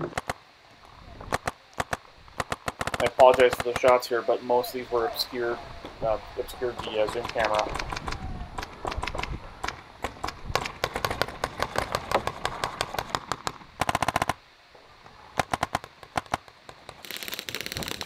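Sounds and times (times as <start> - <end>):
paintball markers firing: 0.0 - 0.4, 1.3 - 4.1, 6.7 - 14.4, 15.4 - 18.0
rapid paintball shot volley: 0.0 - 0.4, 1.2 - 4.2, 6.7 - 14.4, 15.4 - 18.0.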